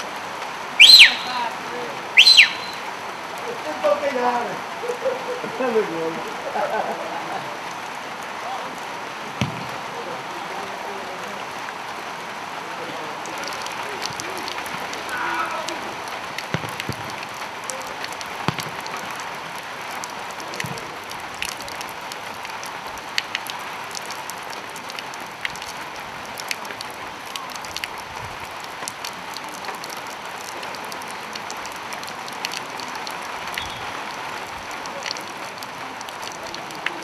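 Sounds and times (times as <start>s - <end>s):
steady outdoor hiss: 0.0s - 37.0s
faint irregular ticks and taps: 23.2s - 24.2s, 36.0s - 37.0s.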